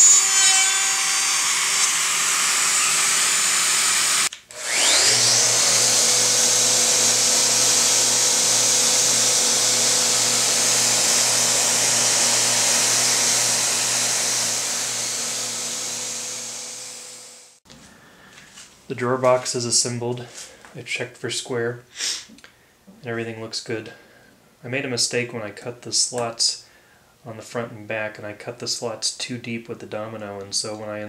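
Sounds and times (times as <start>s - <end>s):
orbital sander whining: 0.0s - 17.6s
router cutting wood: 0.0s - 17.6s.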